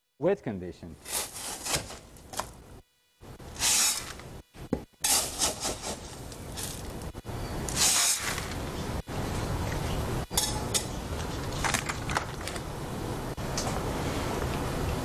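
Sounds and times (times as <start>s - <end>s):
metal scoop scraping aggregate: 1.0s - 2.0s, 5.0s - 7.0s, 7.7s - 8.5s.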